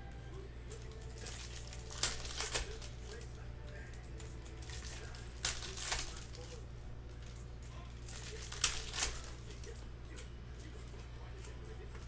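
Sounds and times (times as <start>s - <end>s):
foil wrappers crinkling: 0.7s - 12.0s.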